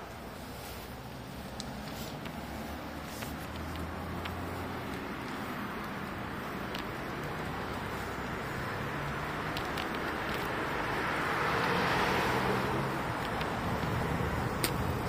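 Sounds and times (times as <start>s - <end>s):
bicycle tyres rolling: 0.0s - 15.0s
faint ticks: 1.4s - 11.3s, 13.0s - 15.0s.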